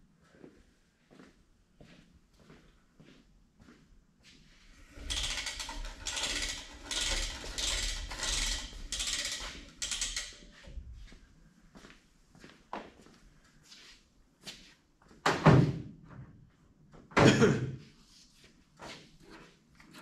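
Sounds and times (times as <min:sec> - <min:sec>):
reel ratchet clicking and rattling: 0:04.8 - 0:10.8.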